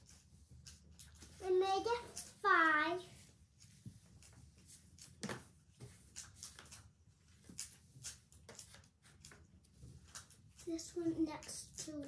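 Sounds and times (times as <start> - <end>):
pastel rubbing on paper: 0.0 - 12.0
pastel sticks clicking: 6.1 - 10.8.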